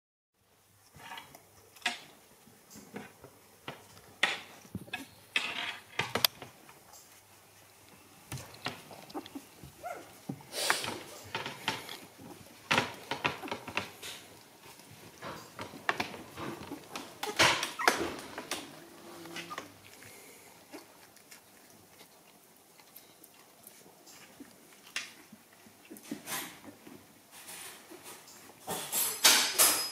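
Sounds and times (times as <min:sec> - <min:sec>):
rustles and clicks of dog moving: 0:00.8 - 0:29.9
puppies squeaking softly: 0:06.8 - 0:27.1.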